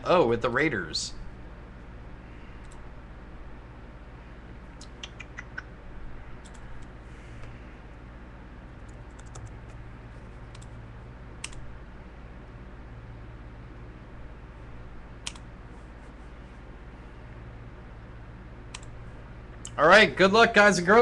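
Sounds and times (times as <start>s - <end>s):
low electrical hum: 0.0s - 21.0s
keyboard and mouse clicks: 4.8s - 5.7s, 6.4s - 7.5s, 8.8s - 9.8s, 10.5s - 10.8s, 11.4s - 11.6s, 15.2s - 15.5s, 18.7s - 18.9s.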